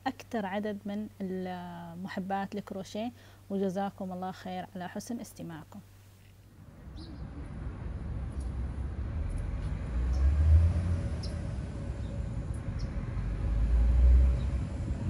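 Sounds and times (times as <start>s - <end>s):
low outdoor rumble: 6.5s - 15.0s.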